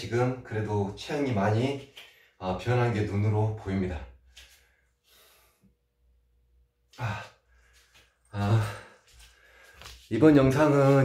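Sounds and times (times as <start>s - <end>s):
man sighing: 6.9s - 7.5s, 8.3s - 9.0s.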